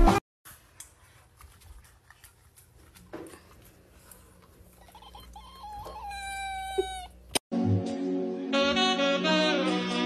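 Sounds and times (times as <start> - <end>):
pet whining call: 4.8 - 7.3.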